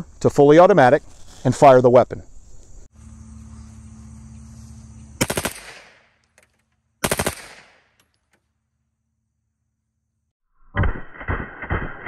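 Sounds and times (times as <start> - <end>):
submachine gun bursts: 5.2 - 6.0, 7.0 - 7.8.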